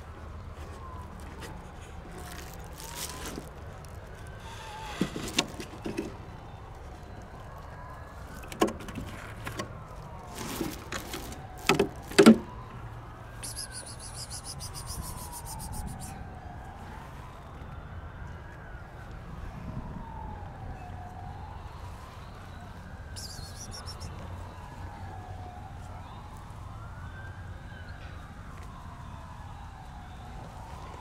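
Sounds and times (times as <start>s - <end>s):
faint siren wailing: 0.0s - 31.0s
plastic bag rustling and crackling: 0.5s - 6.2s, 9.0s - 12.4s.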